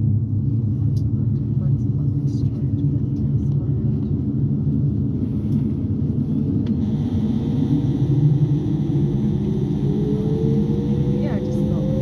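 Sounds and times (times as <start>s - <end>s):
turboprop engine rumble: 0.0s - 12.0s
engine whine rising in pitch: 6.5s - 12.0s.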